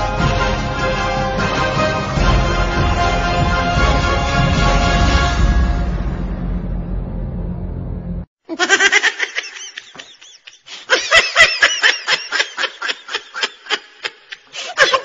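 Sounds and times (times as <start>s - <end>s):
music: 0.0s - 8.3s
high-pitched laughter bursts: 8.5s - 15.0s.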